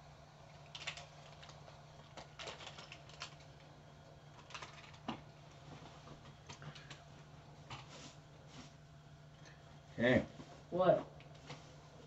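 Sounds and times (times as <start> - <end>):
steady low hum: 0.0 - 12.0
plastic wrappers crinkling: 0.6 - 3.7, 4.3 - 5.3.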